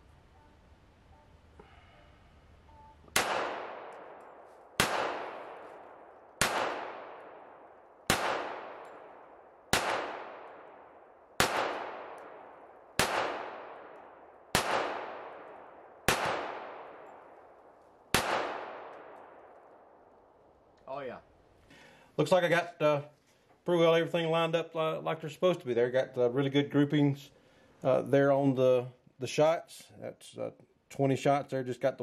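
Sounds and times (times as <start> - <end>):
pistol shots echoing: 3.1 - 20.3.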